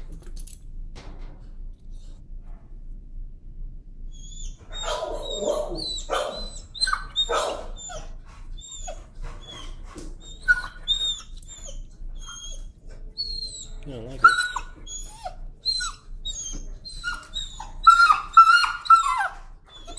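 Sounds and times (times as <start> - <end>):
dog screaming and yelping: 4.3 - 19.9.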